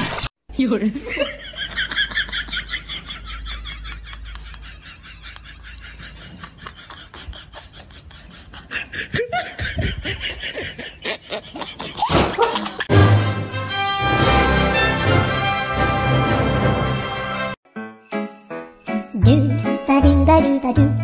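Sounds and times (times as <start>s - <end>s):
person laughing: 1.0s - 12.9s
music: 12.9s - 21.0s.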